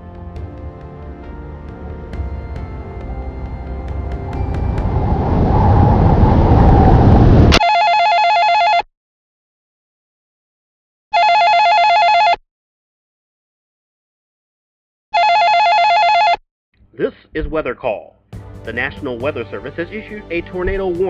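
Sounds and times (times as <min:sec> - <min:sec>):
loud rumbling noise: 0:02.3 - 0:07.6
telephone ringing: 0:07.6 - 0:08.9, 0:11.2 - 0:12.4, 0:15.2 - 0:16.4.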